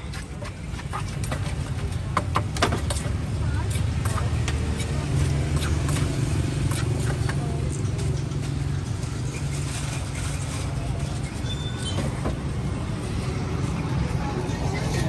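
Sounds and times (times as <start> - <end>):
pestle clacking in wooden mortar: 0.0 - 7.8
street traffic rumble: 0.0 - 15.0.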